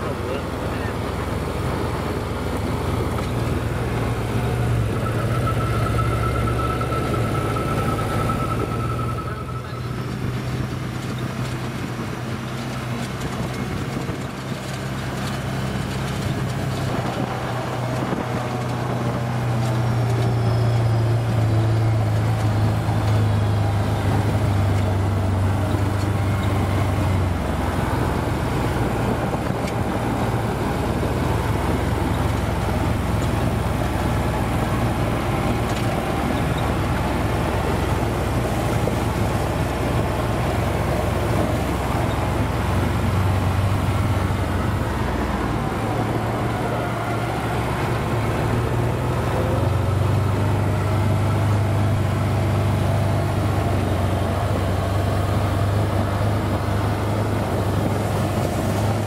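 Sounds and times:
vehicle engine droning: 0:00.0 - 0:59.0
faint high whine: 0:04.4 - 0:11.1.

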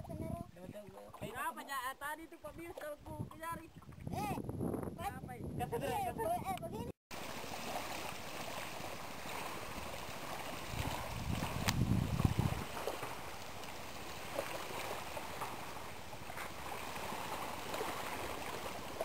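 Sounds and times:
wind buffeting microphone: 0:00.0 - 0:01.6, 0:02.4 - 0:07.0, 0:10.5 - 0:13.3
light wind: 0:00.0 - 0:19.0
small waves lapping on sand: 0:07.1 - 0:19.0.

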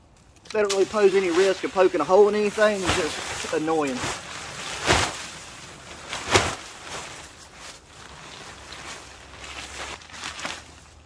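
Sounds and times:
fabric rustling and flapping: 0:00.5 - 0:11.0
loud fabric swoosh: 0:02.5 - 0:07.4.

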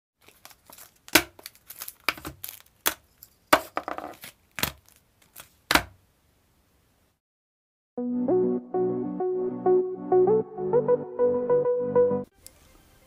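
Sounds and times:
plastic crinkling: 0:00.2 - 0:05.6
packages clacking on a tabletop: 0:00.2 - 0:05.9.

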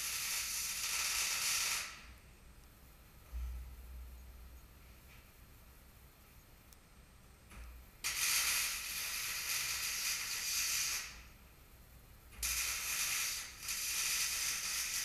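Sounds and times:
arc welding crackle: 0:00.0 - 0:02.2, 0:08.0 - 0:11.4, 0:12.3 - 0:15.0.

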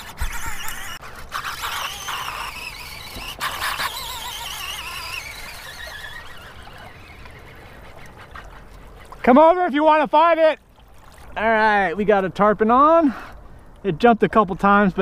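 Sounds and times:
fishing reel drag squealing: 0:00.0 - 0:09.8.

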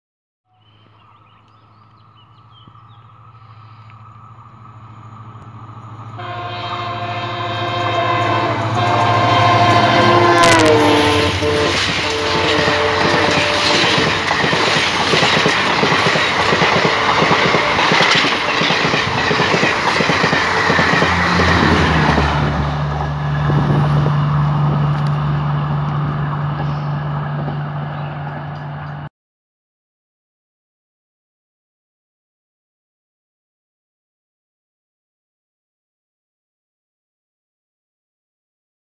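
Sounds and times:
diesel locomotive engine drone: 0:00.7 - 0:29.1
train wheels on track: 0:02.6 - 0:29.1
locomotive horn: 0:06.1 - 0:14.3, 0:16.6 - 0:19.0.

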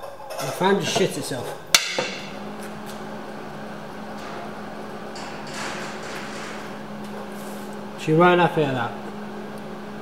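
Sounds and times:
welder humming: 0:01.8 - 0:10.0.

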